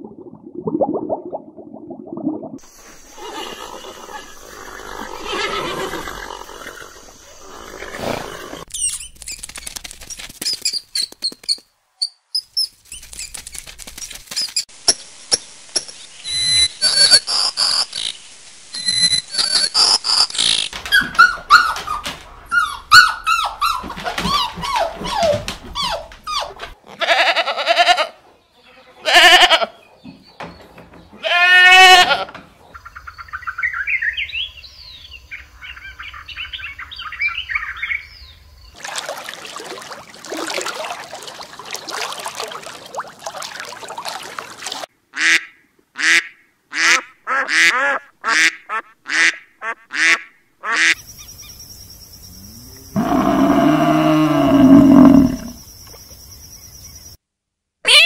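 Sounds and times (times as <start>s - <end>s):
animal calls: 53.0s - 55.6s.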